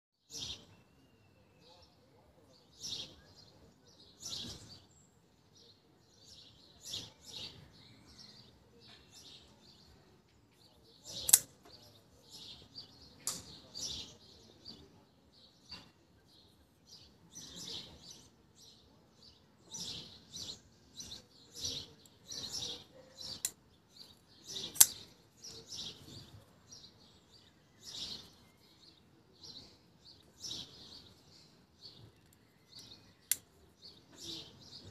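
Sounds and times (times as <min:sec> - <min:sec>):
folding knife clicks and snaps: 0:11.1 - 0:11.7, 0:13.2 - 0:13.5, 0:23.3 - 0:23.6, 0:24.5 - 0:25.1, 0:33.2 - 0:33.5.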